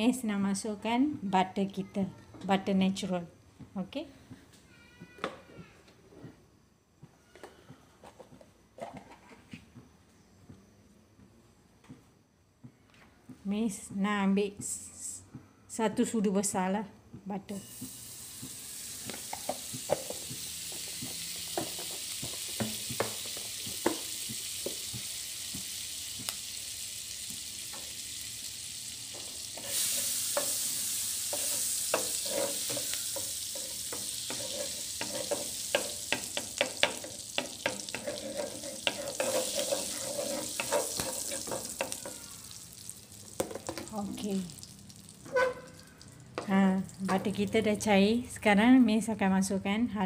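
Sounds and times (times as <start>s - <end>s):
butter sizzling in a pan: 17.5s - 47.9s
spatula scraping a pan: 29.4s - 42.4s, 45.3s - 45.7s.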